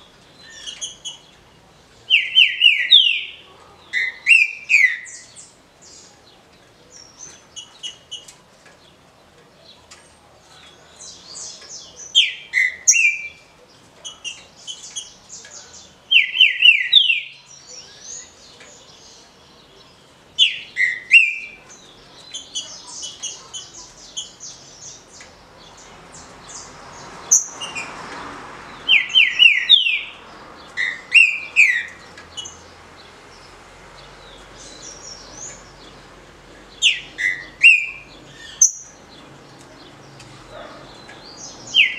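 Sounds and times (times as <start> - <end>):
high bird twittering: 2.1 - 6.1, 11.0 - 19.8, 20.4 - 26.7, 28.8 - 32.7, 36.7 - 39.1, 40.5 - 41.9.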